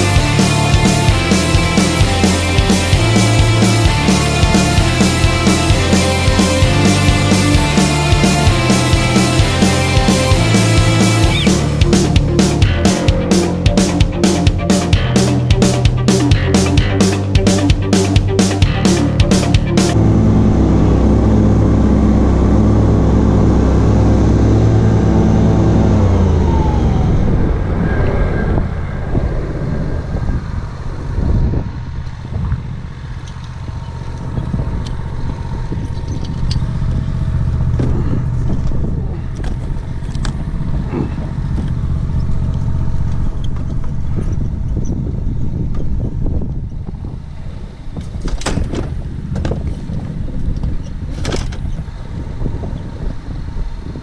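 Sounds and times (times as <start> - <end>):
mower engine running: 0.0 - 45.6
knocks and rattles: 48.0 - 51.7.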